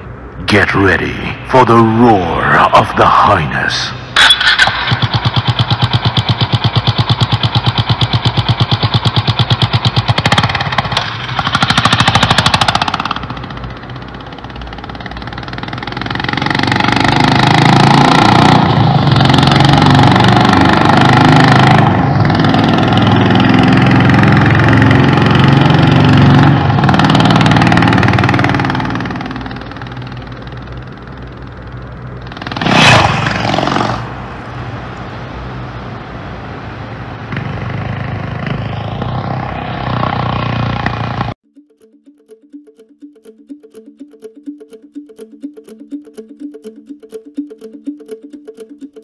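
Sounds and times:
motorcycle engine revving: 4.3s - 35.1s, 37.2s - 41.4s.

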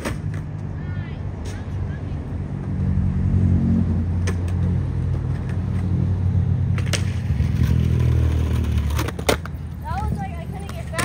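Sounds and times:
skateboard wheels rolling on concrete: 0.0s - 11.0s
skateboard sliding on curb: 6.7s - 9.6s
skateboard clack: 6.7s - 11.0s.

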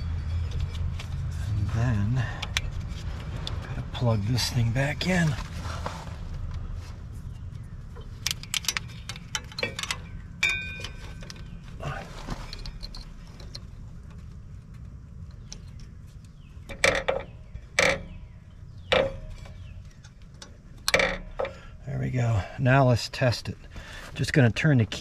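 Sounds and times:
short metallic ring: 10.4s - 11.2s.

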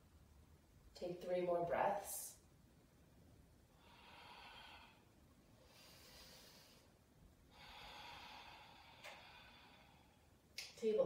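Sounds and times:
slow deep breathing: 3.6s - 10.4s.

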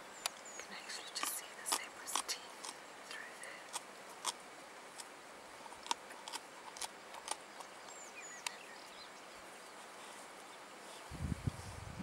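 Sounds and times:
steady hiss: 0.0s - 12.0s
bird chirps: 7.6s - 9.8s.

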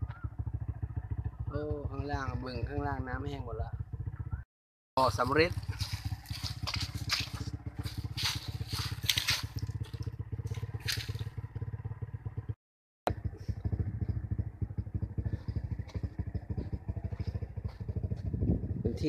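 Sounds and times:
steady low rumble: 5.0s - 12.5s, 13.1s - 19.0s
footsteps on dry leaves: 5.2s - 11.4s.

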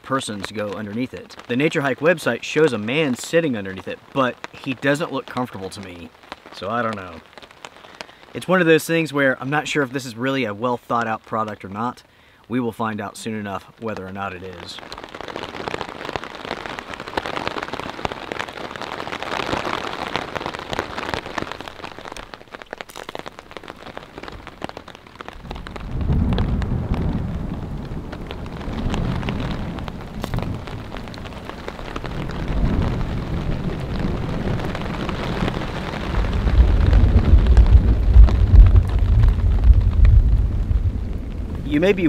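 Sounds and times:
rain on a tarp: 0.0s - 42.0s
thunder rumbling: 23.4s - 42.0s.

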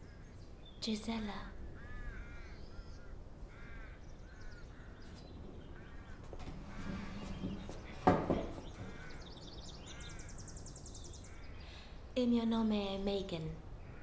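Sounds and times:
crows cawing: 1.8s - 11.8s, 13.8s - 14.0s.

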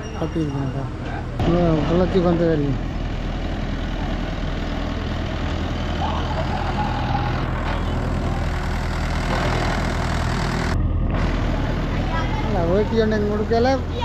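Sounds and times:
heavy vehicle engine idling: 1.4s - 14.0s.

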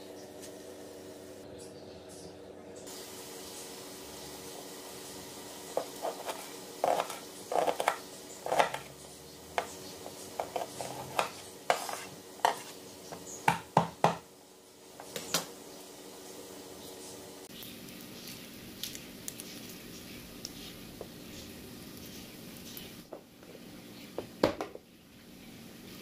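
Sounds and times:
knife chopping on wooden board: 13.4s - 14.2s.

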